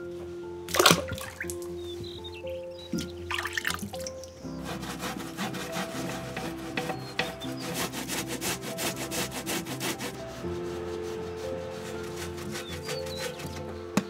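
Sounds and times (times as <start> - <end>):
root grated on grater: 3.0 - 14.0.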